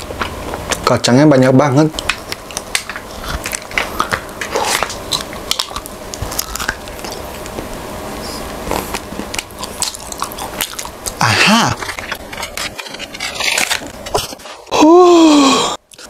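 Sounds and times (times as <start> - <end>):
chocolate crunching and chewing: 2.0 - 7.8, 8.5 - 12.6.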